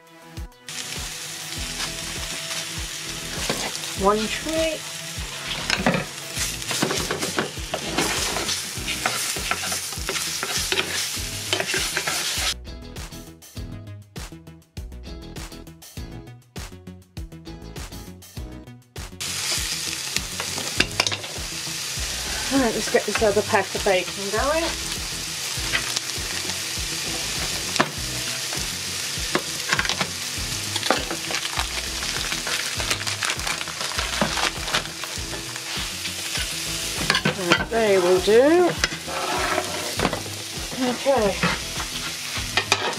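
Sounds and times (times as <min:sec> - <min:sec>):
sausages sizzling in a frying pan: 0:00.7 - 0:12.6, 0:19.2 - 0:42.9
wooden spoon knocking and scraping pan: 0:06.7 - 0:12.4, 0:36.2 - 0:42.9
plastic pack clicks and rustles: 0:30.8 - 0:35.6.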